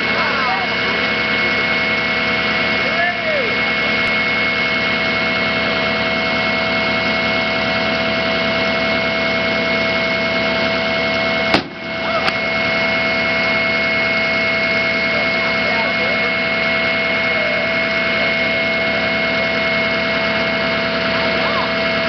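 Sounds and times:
truck engine idling: 0.0 - 22.0
airbag inflator bang: 11.4 - 12.5.

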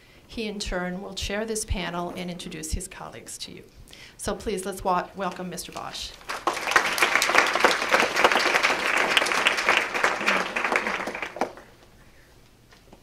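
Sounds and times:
audience applauding: 6.2 - 11.8.

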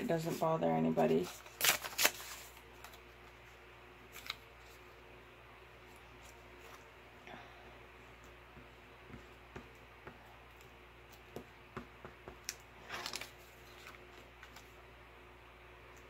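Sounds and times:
air conditioner hum: 0.0 - 16.0
paper rustling: 0.1 - 3.1, 12.9 - 14.8.

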